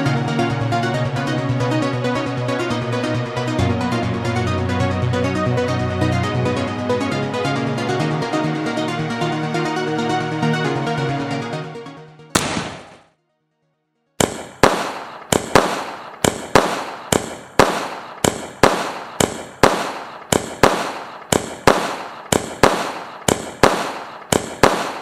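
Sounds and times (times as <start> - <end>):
fireworks bangs: 12.4 - 13.1, 14.2 - 25.0.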